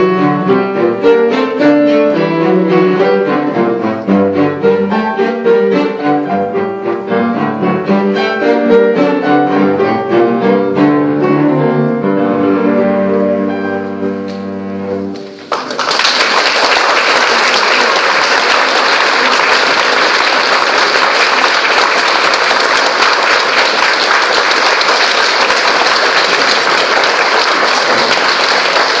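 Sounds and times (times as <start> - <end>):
cellos and piano chord: 0.0 - 15.4
audience applause: 15.4 - 29.0.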